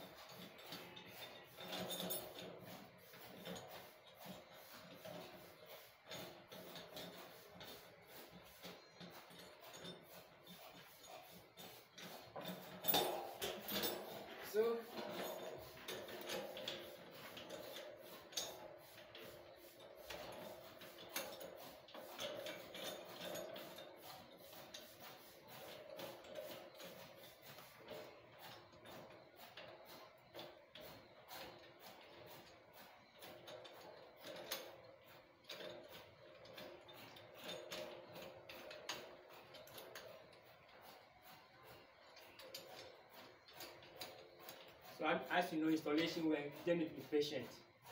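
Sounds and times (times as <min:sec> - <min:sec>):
light metal clicks and clinks: 0:00.2 - 0:02.6, 0:08.8 - 0:17.8.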